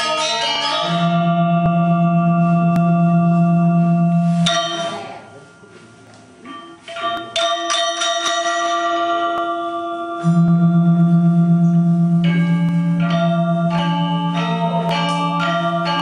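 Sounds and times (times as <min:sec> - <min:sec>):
gamelan metallophones struck: 0:00.0 - 0:16.0
deep wavering gong tone: 0:00.8 - 0:05.5, 0:10.0 - 0:16.0.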